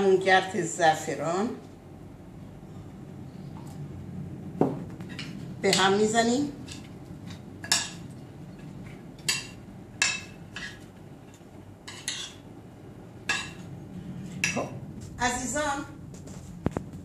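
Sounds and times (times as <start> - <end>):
spoon stirring food in bowl: 6.6 - 12.5.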